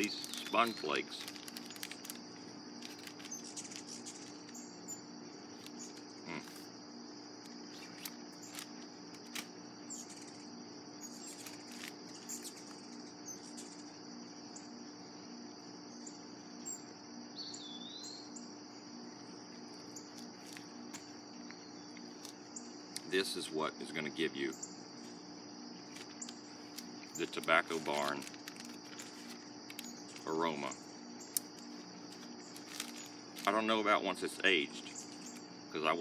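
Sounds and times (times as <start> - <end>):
bird chirp: 0.0 - 2.0, 3.0 - 6.0, 9.8 - 14.7, 15.9 - 18.5, 34.6 - 35.5
tobacco rustling and clicking: 0.0 - 4.7, 5.5 - 6.7, 7.4 - 10.4, 11.1 - 13.0, 19.6 - 23.1, 25.8 - 33.7, 34.8 - 35.5
air conditioner humming: 0.0 - 36.0
crickets trilling: 0.0 - 36.0.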